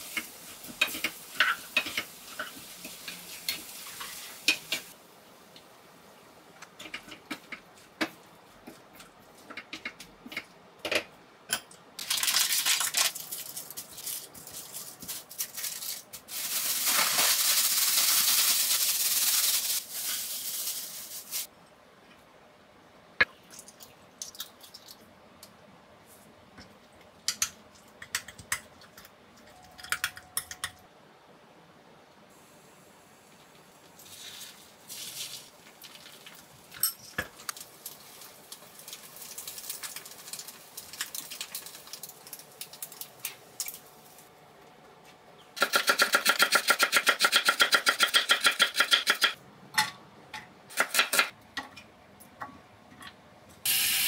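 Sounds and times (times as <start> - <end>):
utensils clicking and tapping: 26.6 - 30.8, 45.6 - 53.2
loud steady hiss: 53.6 - 54.0.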